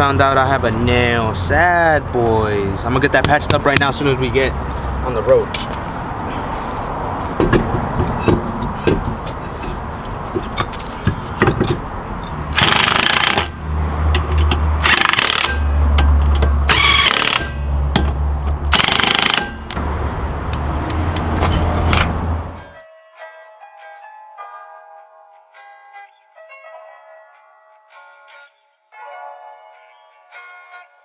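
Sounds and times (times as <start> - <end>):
impact wrench hammering: 5.6 - 5.8, 7.4 - 9.2, 10.4 - 19.8.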